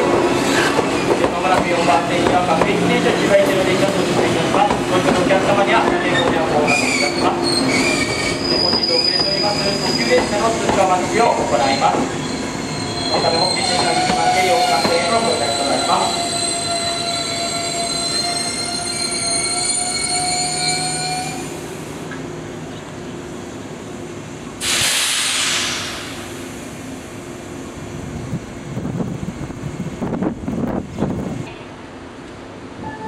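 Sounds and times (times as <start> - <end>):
train brakes squealing: 6.1 - 21.6
loud hiss of air: 24.6 - 26.9
wind buffeting microphone: 27.9 - 31.5.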